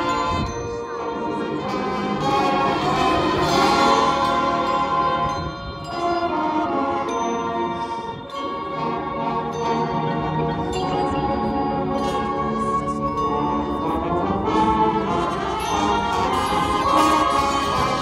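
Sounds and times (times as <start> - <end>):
marching band brass chords: 1.2 - 8.0, 13.8 - 18.0.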